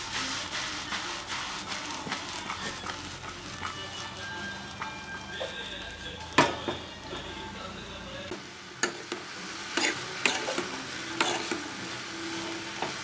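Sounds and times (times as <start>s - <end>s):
spoon scraping a pan: 0.0s - 5.7s, 8.8s - 11.7s
vegetables sizzling in a pan: 0.0s - 13.0s.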